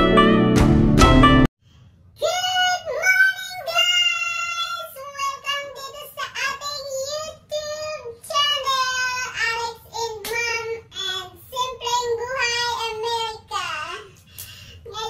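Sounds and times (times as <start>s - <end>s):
high-pitched voice singing: 2.2s - 14.1s.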